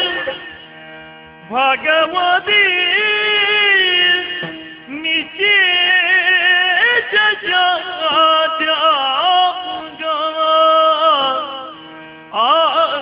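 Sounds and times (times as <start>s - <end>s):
steady low drone: 0.0s - 5.4s
person singing devotional verse: 1.5s - 13.0s.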